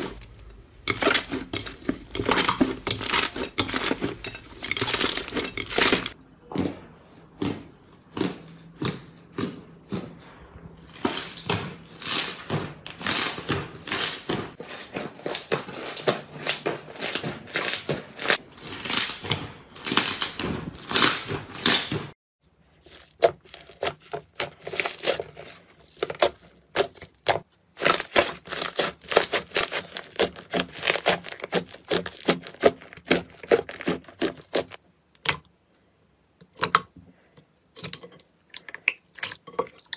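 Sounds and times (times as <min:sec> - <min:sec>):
slime squelching and popping: 0:22.8 - 0:35.5.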